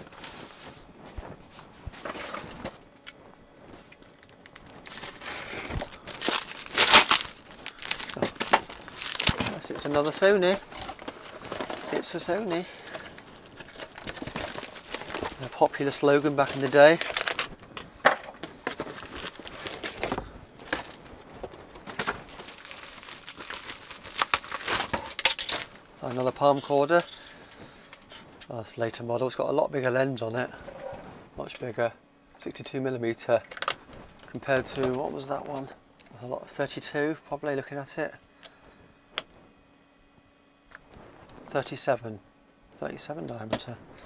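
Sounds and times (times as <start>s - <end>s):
plastic bag rustling: 0.0s - 28.3s
packaging crinkling: 3.9s - 28.0s
cardboard box handling: 4.9s - 15.5s.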